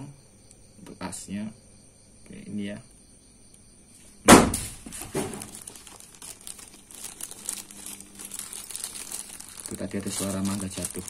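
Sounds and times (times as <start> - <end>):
mango falling with thud: 4.2 - 5.4.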